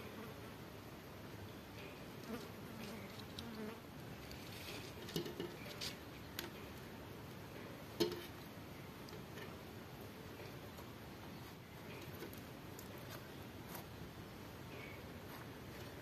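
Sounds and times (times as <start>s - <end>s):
faint background hiss: 0.0s - 16.0s.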